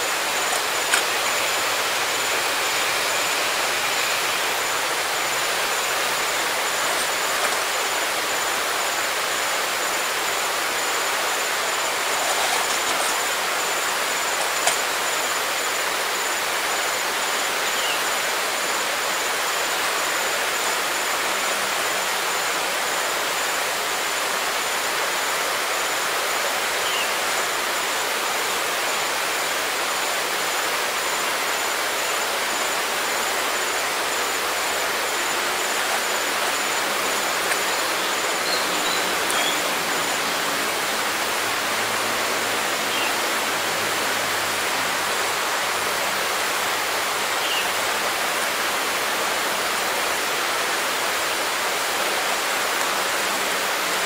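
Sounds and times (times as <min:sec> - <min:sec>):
forest ambience hiss: 0:00.0 - 0:54.0.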